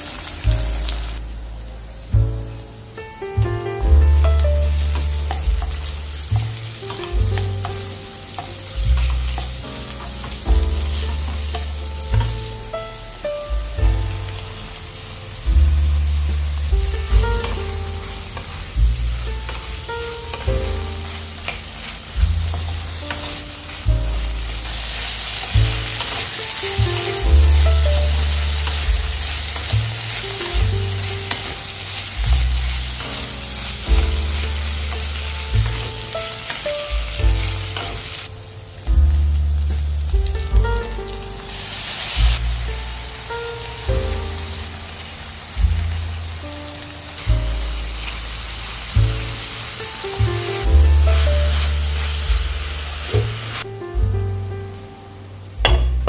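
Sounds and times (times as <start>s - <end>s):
food sizzling in oil: 0.0s - 54.0s
background music with bass beat: 0.0s - 56.0s
wooden spatula stirring: 4.6s - 12.5s.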